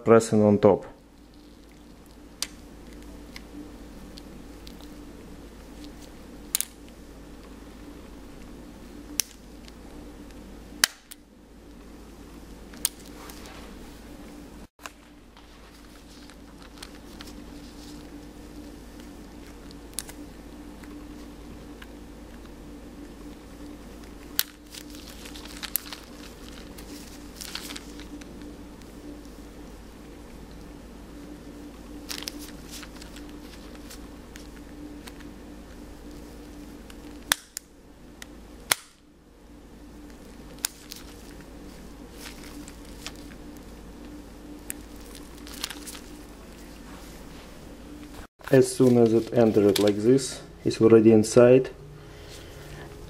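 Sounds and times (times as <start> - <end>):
faint crinkling handling noise: 1.0 - 8.6, 11.6 - 37.3, 40.0 - 50.5.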